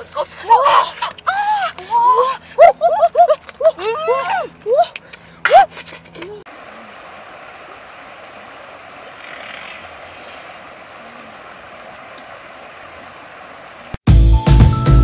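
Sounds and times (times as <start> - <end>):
river flowing: 0.0 - 14.0
loud music: 14.1 - 15.0.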